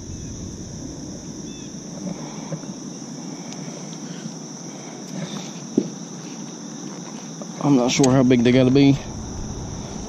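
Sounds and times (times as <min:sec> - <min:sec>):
insect chorus: 0:00.0 - 0:10.0.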